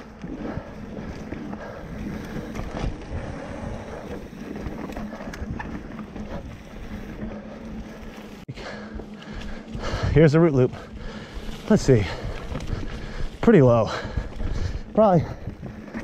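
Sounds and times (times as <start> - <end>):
wind buffeting microphone: 0.0 - 8.1, 8.8 - 16.0.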